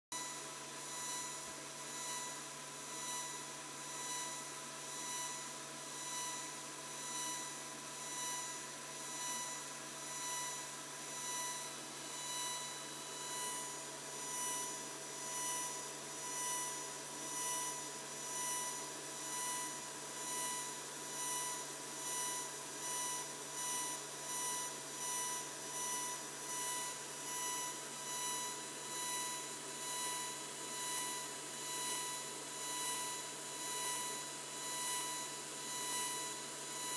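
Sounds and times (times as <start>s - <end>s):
laser engraver whining: 0.2s - 36.9s.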